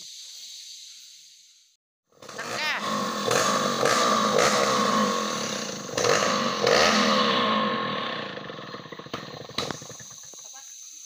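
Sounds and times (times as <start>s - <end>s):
chainsaw cutting log: 2.2s - 10.3s.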